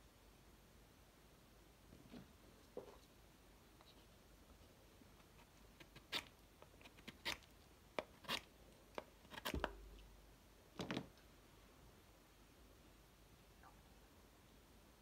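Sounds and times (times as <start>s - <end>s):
knife shaving wood: 5.4s - 9.7s.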